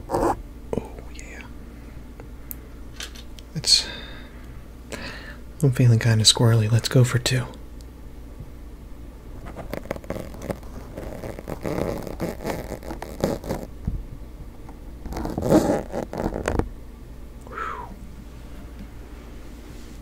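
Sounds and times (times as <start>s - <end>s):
fingers scratching microphone cover: 9.4s - 13.7s, 15.0s - 16.7s.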